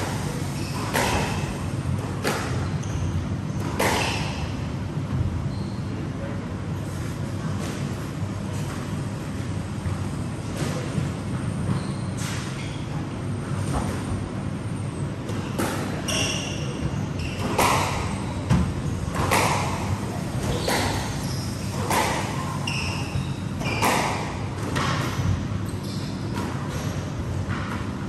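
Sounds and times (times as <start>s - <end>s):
squash ball hitting rackets and walls: 0.0s - 4.6s, 15.3s - 28.0s.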